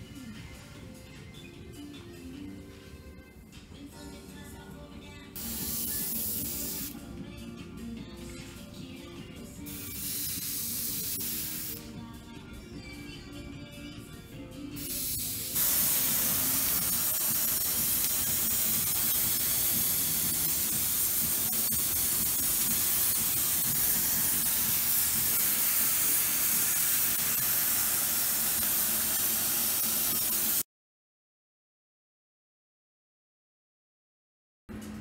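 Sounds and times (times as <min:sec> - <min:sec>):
hair steamer hissing: 0:05.4 - 0:07.0, 0:09.7 - 0:11.9, 0:14.8 - 0:30.6.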